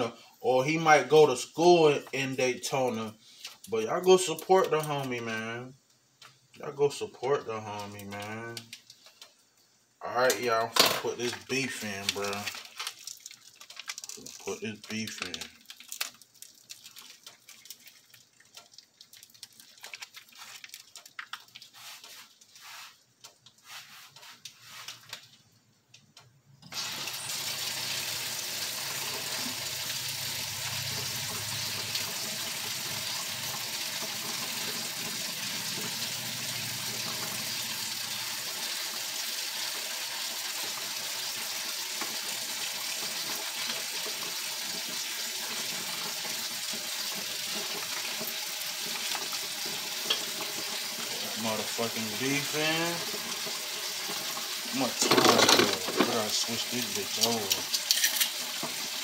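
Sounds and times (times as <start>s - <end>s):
tap water running: 10.2s - 25.2s, 26.6s - 59.0s.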